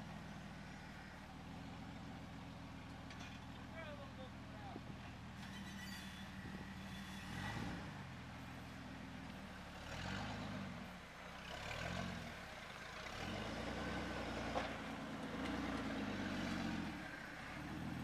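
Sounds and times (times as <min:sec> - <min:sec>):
off-road vehicle engine revving: 0:05.4 - 0:18.0.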